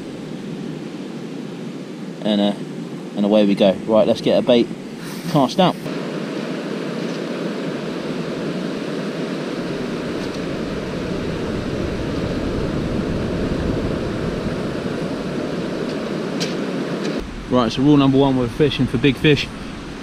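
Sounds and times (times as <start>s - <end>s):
wind buffeting microphone: 6.5s - 20.0s.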